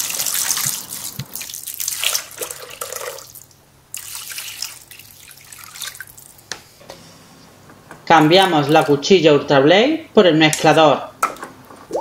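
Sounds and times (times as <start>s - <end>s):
water pouring into metal bowl: 0.0s - 6.3s.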